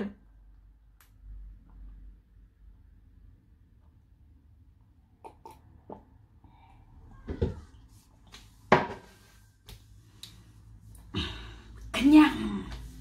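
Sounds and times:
person swallowing water: 0:05.1 - 0:06.2.

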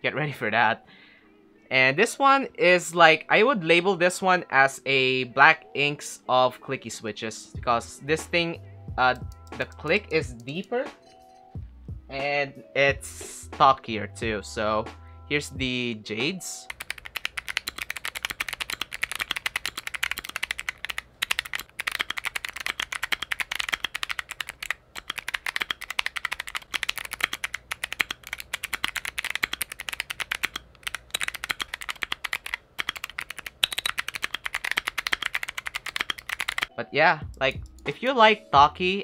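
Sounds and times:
fast mechanical keyboard typing: 0:16.7 - 0:36.7.

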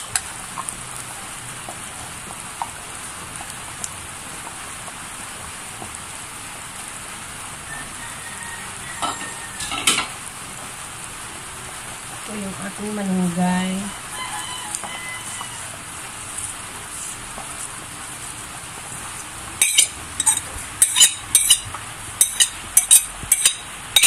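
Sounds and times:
broth bubbling at a boil: 0:00.0 - 0:24.0
spoon knocking against pan: 0:22.2 - 0:24.0.

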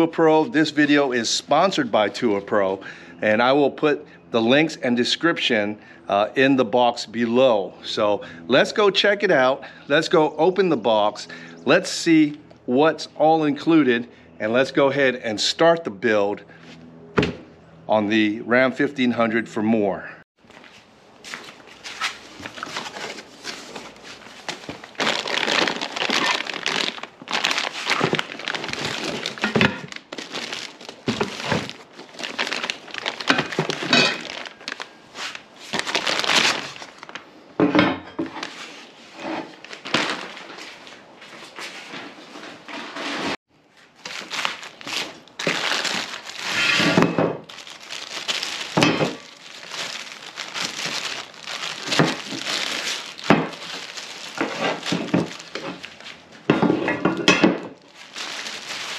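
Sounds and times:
plastic packing crinkling: 0:21.4 - 0:37.2, 0:39.6 - 0:40.9, 0:43.8 - 0:46.8, 0:47.5 - 0:56.3, 0:57.8 - 0:58.9.

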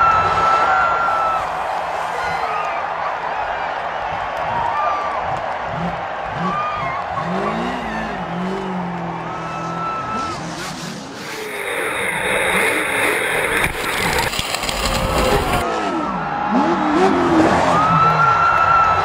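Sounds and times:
truck engine revving: 0:05.7 - 0:17.8.

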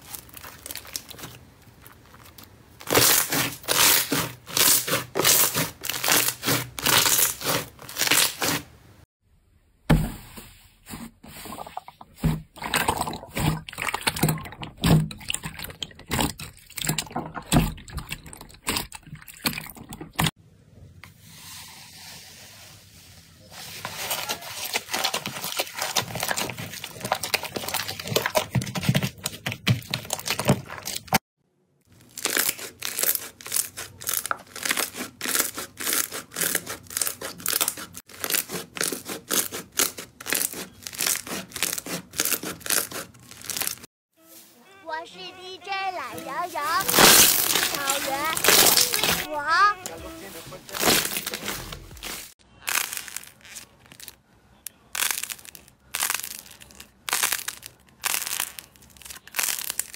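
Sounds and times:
slime popping and crackling: 0:00.0 - 0:08.6, 0:32.0 - 0:43.9, 0:46.7 - 0:49.3, 0:50.7 - 0:59.9.

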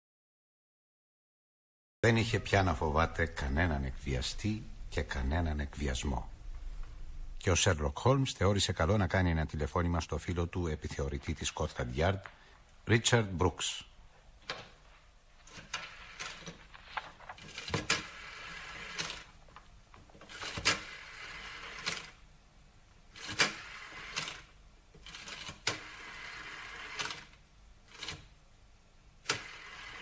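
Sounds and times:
rotary phone dial whirring: 0:17.4 - 0:19.3, 0:20.2 - 0:22.2, 0:23.2 - 0:28.3, 0:29.3 - 0:30.0.

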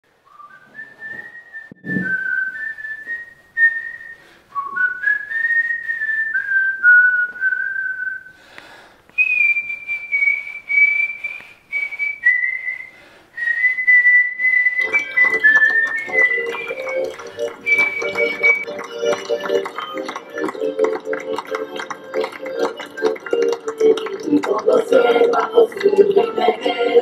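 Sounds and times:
person whistling a tune: 0:00.3 - 0:08.4, 0:09.2 - 0:24.0
short low thump: 0:01.1 - 0:02.4.

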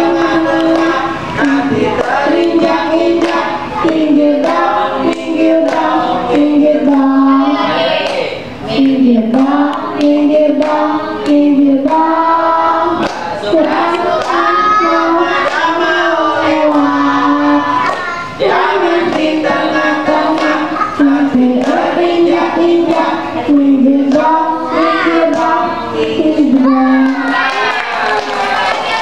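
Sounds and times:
girl singing into a microphone: 0:00.0 - 0:07.9, 0:08.5 - 0:27.5
hand clapping: 0:00.5 - 0:06.0, 0:13.0 - 0:14.5, 0:19.0 - 0:21.9, 0:25.2 - 0:25.7, 0:27.0 - 0:29.0.

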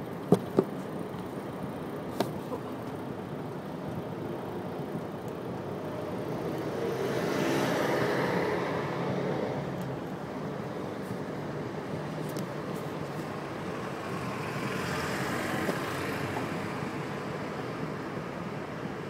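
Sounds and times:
city road traffic: 0:00.0 - 0:19.0
vehicle passing close by: 0:06.4 - 0:09.8.

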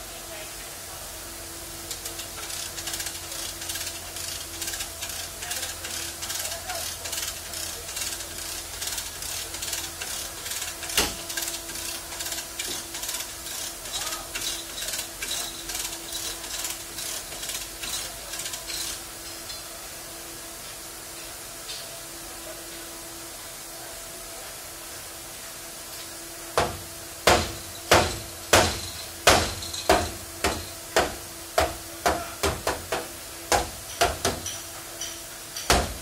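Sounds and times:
chain hoist ratchet clicking: 0:01.9 - 0:19.6.

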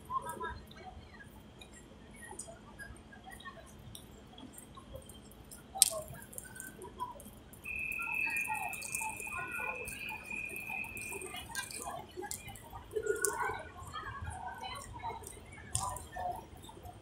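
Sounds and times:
faint street sounds: 0:00.0 - 0:17.0
steady high-pitched tone: 0:07.7 - 0:12.1.

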